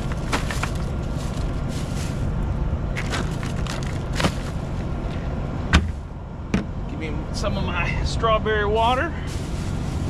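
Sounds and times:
ice crunching and rattling: 0.0s - 2.3s, 2.9s - 4.7s
plastic bag crinkling: 0.0s - 2.3s, 3.0s - 4.6s
steady low rumble: 0.0s - 10.0s.

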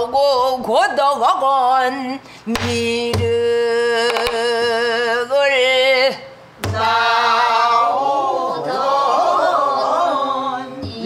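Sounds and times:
stick striking barrel drum: 2.5s - 3.4s.

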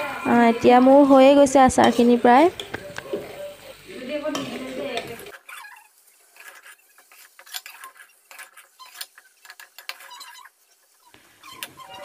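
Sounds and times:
spatula scraping a wok: 0.0s - 12.0s.

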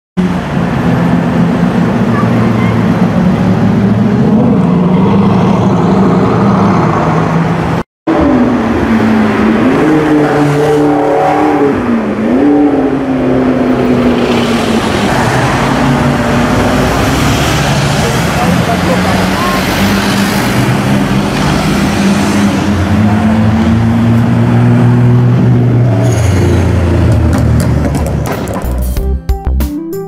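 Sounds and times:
car engine revving: 0.2s - 28.6s
traffic noise: 0.2s - 29.0s.

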